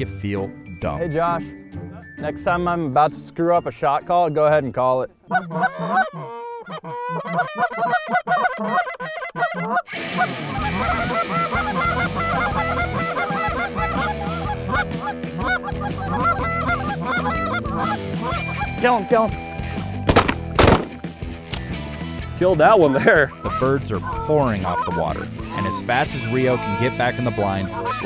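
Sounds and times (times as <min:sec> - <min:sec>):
geese honking: 0:05.2 - 0:20.8, 0:22.6 - 0:28.0
goose call: 0:05.3 - 0:18.8, 0:23.0 - 0:28.0.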